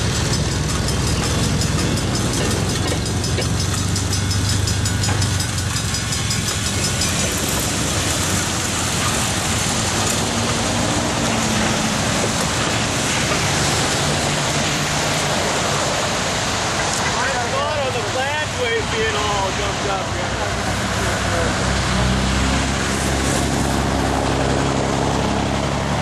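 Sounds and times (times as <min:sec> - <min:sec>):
small engine humming with ticking: 0:00.0 - 0:17.1
rail wheel and engine noise: 0:00.0 - 0:26.0.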